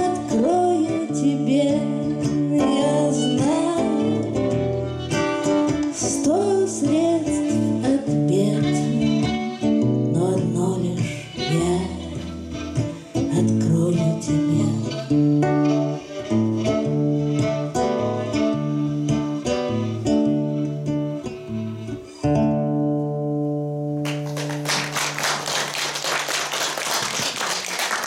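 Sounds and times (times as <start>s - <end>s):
violin playing: 0.0s - 22.6s
acoustic guitar: 0.0s - 25.4s
audience applause: 24.0s - 28.0s.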